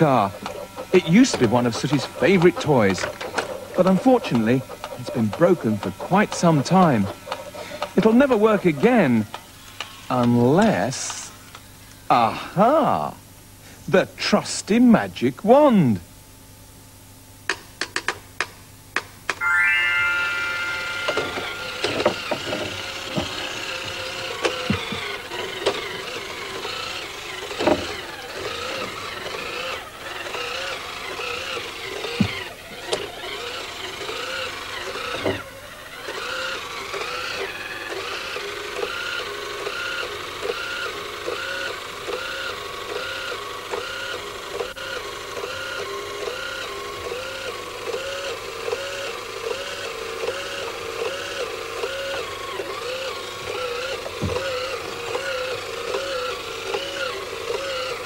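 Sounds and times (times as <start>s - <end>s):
toy car electronic siren: 19.4s - 25.5s.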